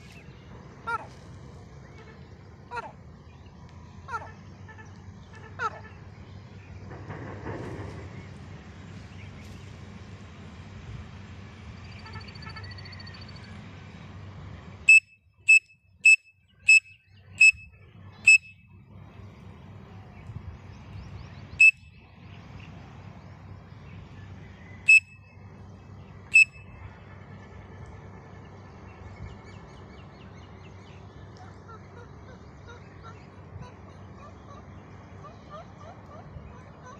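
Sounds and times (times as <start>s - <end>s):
shrill whistle notes: 18.3s - 18.6s, 26.3s - 26.6s.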